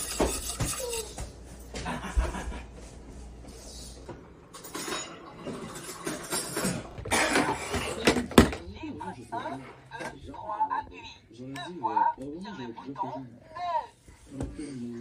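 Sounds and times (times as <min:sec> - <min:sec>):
whisk scraping a metal pot: 0:00.0 - 0:01.2
plate and cutlery clinking: 0:04.5 - 0:08.1.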